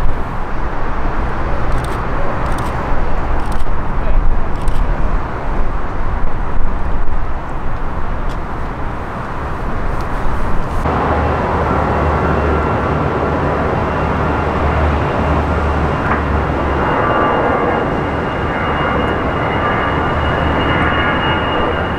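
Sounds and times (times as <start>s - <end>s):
distant airliner rumble: 0.0s - 21.9s
jet engine noise with high whine: 0.0s - 21.9s.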